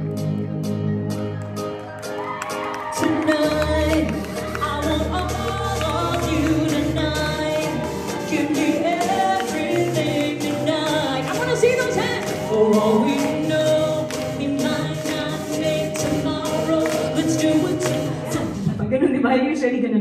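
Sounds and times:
accompanying music: 0:00.0 - 0:19.0
woman singing into microphone: 0:02.9 - 0:18.9.

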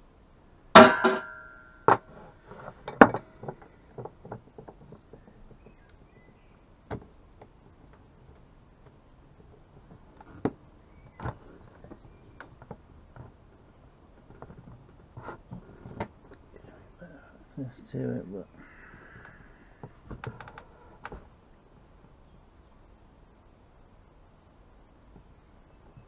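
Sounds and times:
loud metallic clatter: 0:00.8 - 0:01.7.

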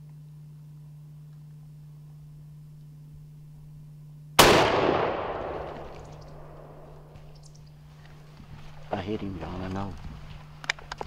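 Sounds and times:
faint low hum: 0:00.0 - 0:11.0
loud gunshot with echo: 0:04.4 - 0:06.9.

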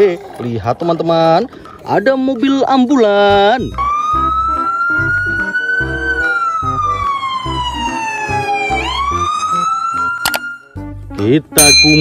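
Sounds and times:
ambulance siren wailing: 0:03.0 - 0:10.9.

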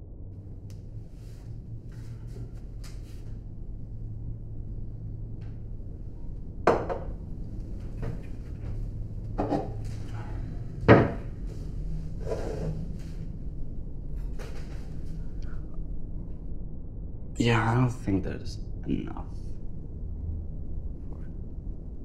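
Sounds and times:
steady low hum: 0:00.0 - 0:22.0
crockery clunking on counter: 0:06.7 - 0:07.1, 0:10.9 - 0:11.3
cupboard opening and closing: 0:07.8 - 0:11.4, 0:12.1 - 0:13.0.

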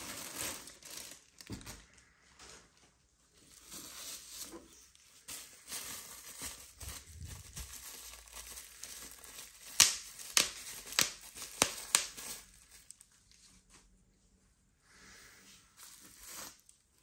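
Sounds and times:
bubble wrap popping: 0:00.0 - 0:01.6, 0:03.9 - 0:13.1
bubble wrap crinkling: 0:00.0 - 0:13.7, 0:15.8 - 0:17.0.

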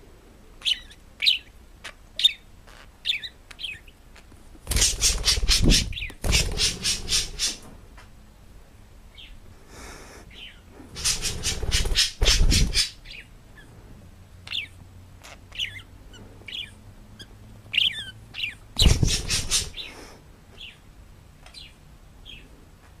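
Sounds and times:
parrot squawking: 0:04.7 - 0:07.6, 0:10.4 - 0:13.7.

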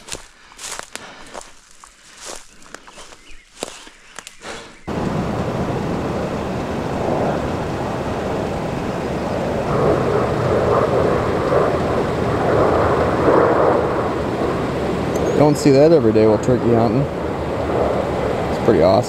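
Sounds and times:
propeller aircraft drone overhead: 0:04.6 - 0:19.0.

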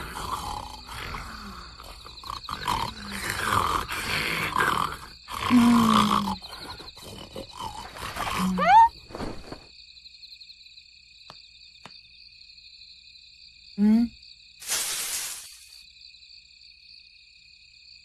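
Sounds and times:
people snoring: 0:00.0 - 0:08.9
crickets chirping: 0:00.0 - 0:18.0.

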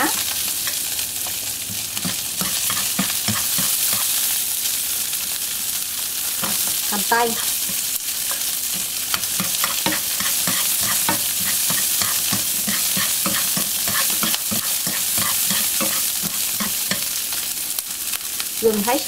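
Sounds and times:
vegetables sizzling in oil: 0:00.0 - 0:19.0
chopsticks scraping a pan: 0:00.2 - 0:04.3, 0:06.4 - 0:17.2.

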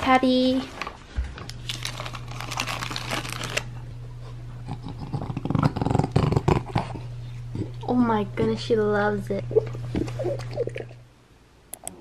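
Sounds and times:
steady low hum: 0:00.0 - 0:12.0
paper rustling: 0:00.3 - 0:03.7.

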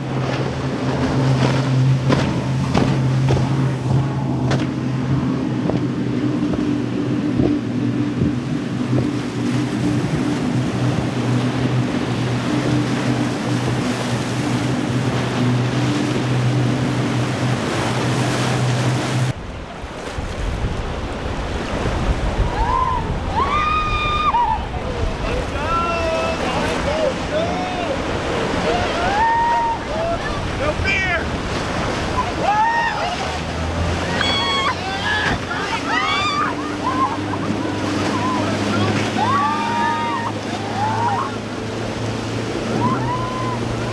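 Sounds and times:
boat engines droning: 0:00.0 - 0:43.9
surf: 0:00.0 - 0:43.9
water rushing: 0:00.0 - 0:43.9
wind buffeting microphone: 0:18.7 - 0:43.9.

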